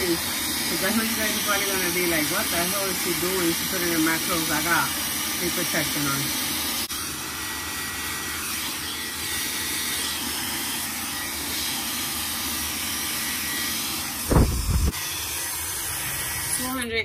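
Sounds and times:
hair dryer blowing: 0.0 - 16.9
low rumble: 14.3 - 14.9.

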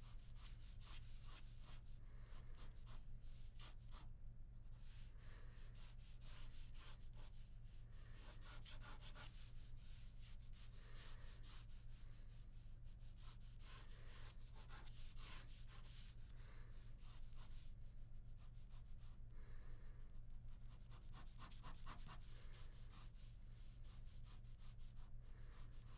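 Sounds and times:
steady low hum: 0.0 - 25.9
pen scratching on paper: 8.2 - 11.7, 13.1 - 16.1, 20.8 - 23.2.

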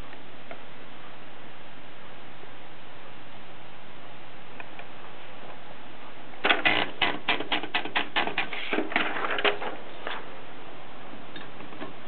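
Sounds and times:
typewriter platen ratchet clicks: 6.4 - 9.6.

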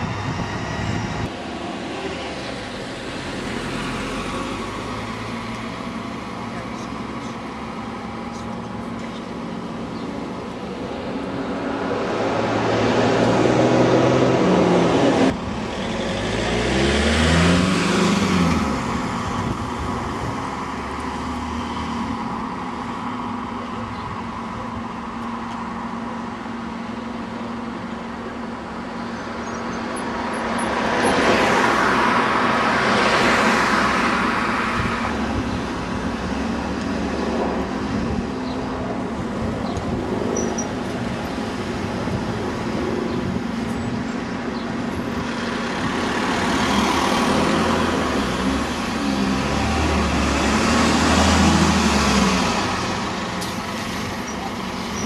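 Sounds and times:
vehicle passing with tyre noise: 0.0 - 24.0, 28.9 - 55.0
diesel engine pulling away: 0.0 - 55.0.

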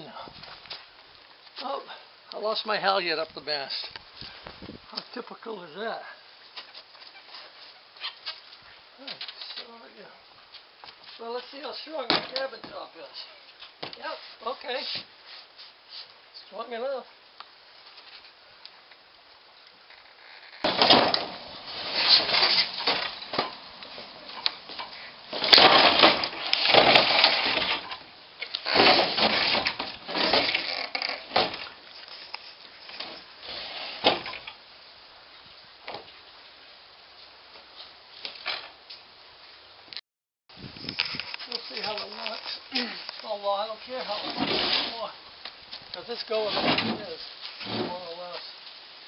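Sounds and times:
person moving on boat deck: 20.1 - 34.5.

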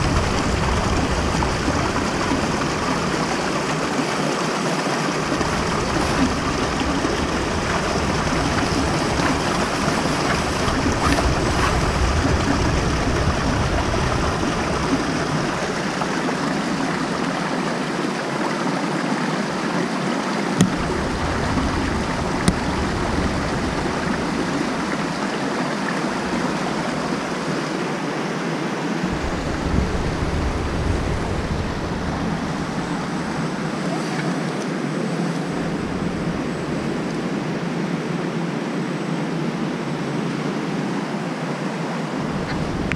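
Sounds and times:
low rumble: 0.0 - 3.8, 29.0 - 34.0
creek water rushing over rocks: 0.0 - 42.9.

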